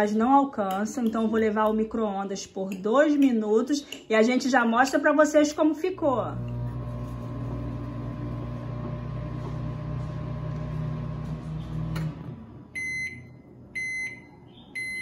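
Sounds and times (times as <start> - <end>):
microwave oven humming: 6.3 - 13.4
high microwave beeps: 12.7 - 15.0.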